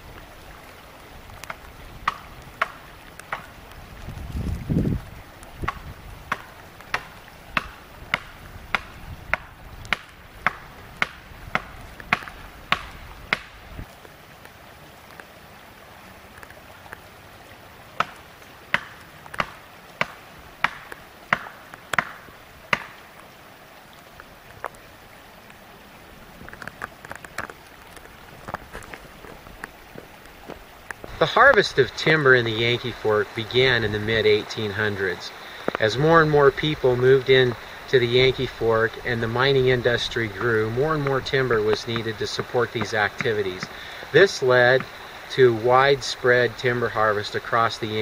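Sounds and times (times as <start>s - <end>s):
sharp knocks: 5.6s - 13.5s.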